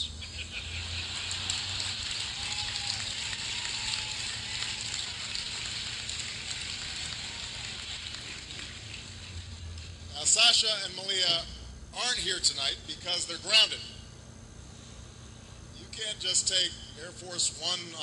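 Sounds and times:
audience laughing: 0:00.0 - 0:02.2
audience applauding: 0:00.6 - 0:09.6.

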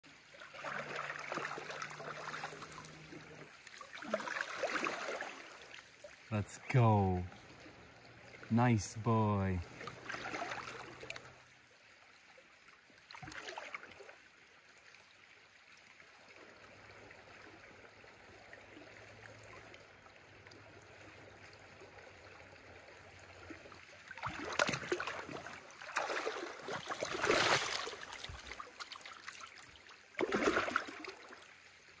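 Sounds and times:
shallow river flowing: 0:00.0 - 0:32.0
water splashing: 0:00.3 - 0:07.6, 0:09.1 - 0:11.2, 0:24.2 - 0:29.6, 0:30.2 - 0:31.4.

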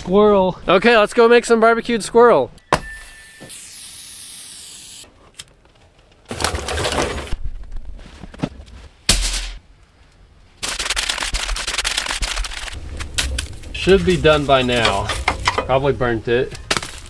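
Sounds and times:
wood fire crackling: 0:11.8 - 0:17.0.

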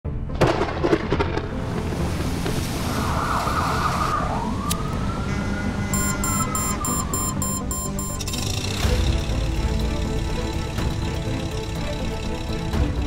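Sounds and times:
siren wail: 0:03.8 - 0:08.0
rhythmic music beat: 0:06.0 - 0:08.3.

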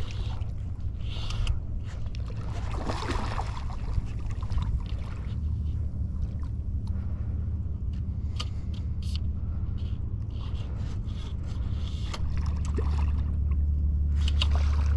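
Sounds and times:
water sloshing and splashing: 0:00.0 - 0:07.3, 0:10.3 - 0:14.9
steady low rumble: 0:00.0 - 0:14.9.

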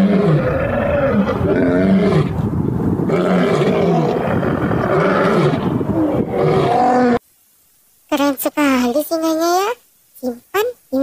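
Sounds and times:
lion roaring: 0:00.0 - 0:07.2.

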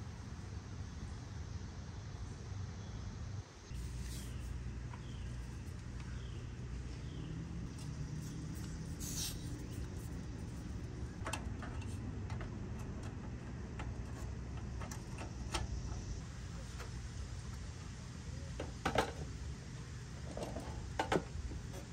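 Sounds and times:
steady low hum: 0:00.0 - 0:21.9
brief hiss: 0:09.0 - 0:09.6.

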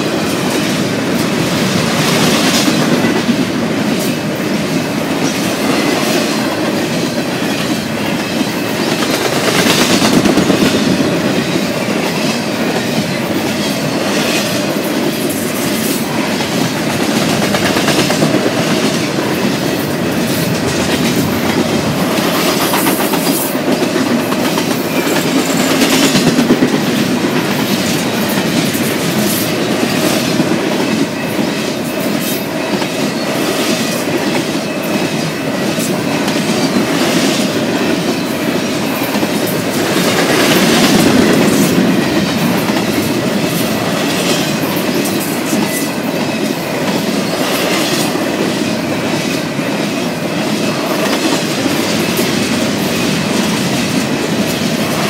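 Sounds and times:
clicks and clanks of train cars: 0:00.0 - 0:55.0
train wheels rumbling on rails: 0:00.0 - 0:55.0.

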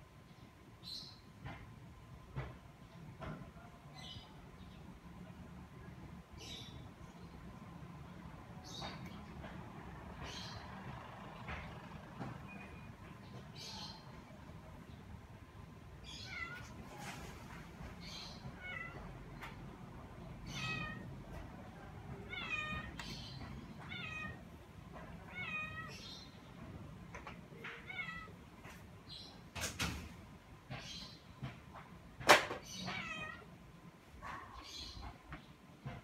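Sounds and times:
cat meowing: 0:16.1 - 0:16.8, 0:18.4 - 0:19.2, 0:20.4 - 0:24.4, 0:25.1 - 0:26.1, 0:27.6 - 0:28.4, 0:32.8 - 0:33.6.

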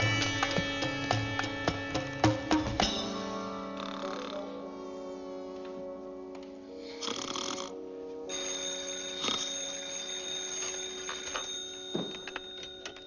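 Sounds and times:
background music: 0:00.0 - 0:13.0
person snoring: 0:03.7 - 0:05.5, 0:06.7 - 0:07.8
telephone bell ringing: 0:08.3 - 0:13.0.

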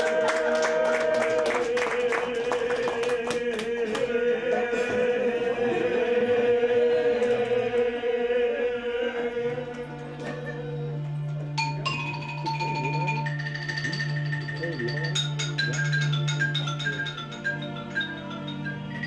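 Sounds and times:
mallet instrument ringing note: 0:11.6 - 0:19.0.

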